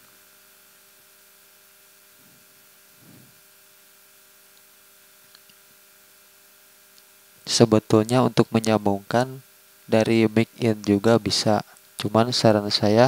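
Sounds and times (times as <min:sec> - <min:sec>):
faint mains hum: 0:00.0 - 0:13.0
soft low rustles: 0:02.2 - 0:03.4
tiny ticks: 0:05.3 - 0:05.6.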